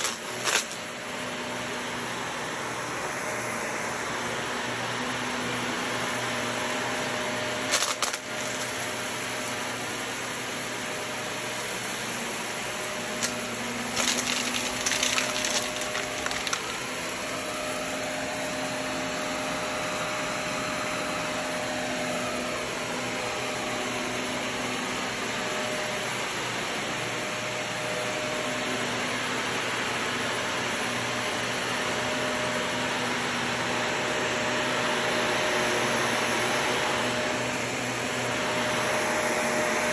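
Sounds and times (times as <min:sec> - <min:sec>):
grit crackling in vacuum: 0:00.0 - 0:01.0, 0:12.4 - 0:18.6
vacuum cleaner running on carpet: 0:00.0 - 0:39.9.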